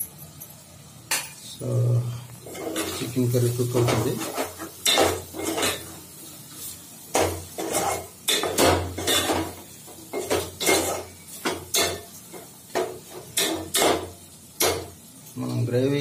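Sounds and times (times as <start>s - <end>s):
spoon scraping metal pot: 7.6s - 9.4s.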